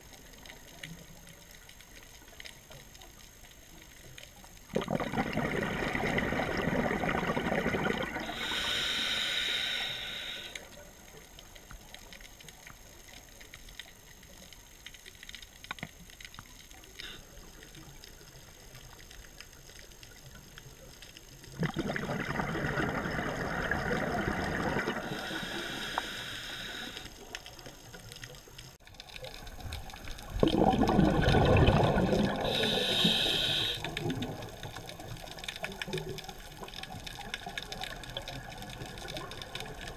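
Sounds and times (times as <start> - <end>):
exhaled bubbles underwater: 4.5 - 9.1, 20.1 - 27.4, 28.8 - 39.9
regulator hiss: 8.2 - 11.2, 24.9 - 27.6, 32.0 - 35.4.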